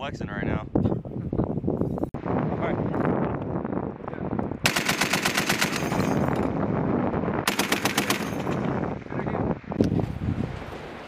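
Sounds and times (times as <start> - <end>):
machine gun automatic fire: 4.6 - 6.2, 7.4 - 8.6.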